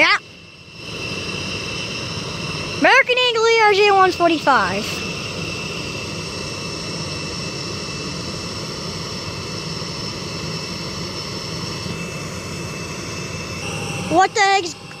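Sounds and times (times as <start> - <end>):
jet aircraft idling: 0.0 - 15.0.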